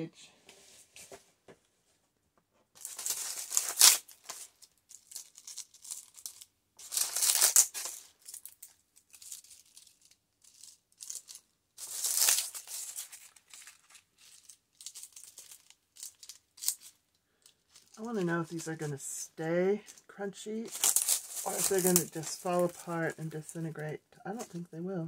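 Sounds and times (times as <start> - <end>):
dry leaves crackling: 2.8 - 16.9, 20.6 - 23.7.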